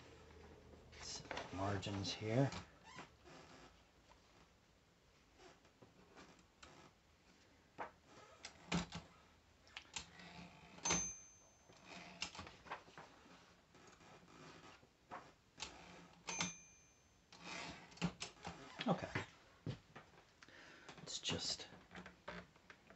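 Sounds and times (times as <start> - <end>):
typewriter bell ringing: 10.8 - 12.2, 16.2 - 17.3
typewriter carriage clicks and clacks: 16.2 - 16.6.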